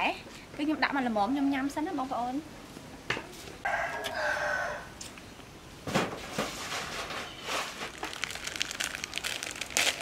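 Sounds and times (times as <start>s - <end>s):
rooster crowing: 3.6s - 5.0s.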